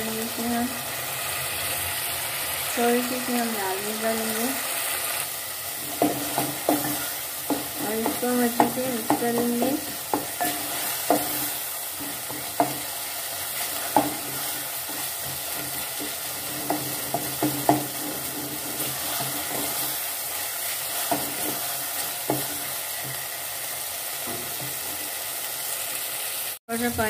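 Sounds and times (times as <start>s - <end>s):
masala sizzling in oil: 0.0s - 27.0s
wooden spoon knocking a pot: 5.9s - 13.0s, 13.7s - 19.9s, 21.0s - 23.2s.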